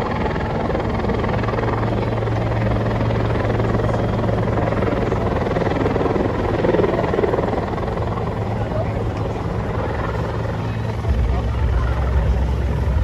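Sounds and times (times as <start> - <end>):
helicopter rotor and engine drone: 0.0 - 13.0.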